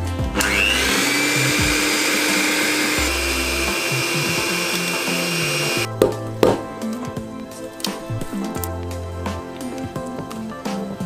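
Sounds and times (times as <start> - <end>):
electric hand mixer whining: 0.2 - 5.9.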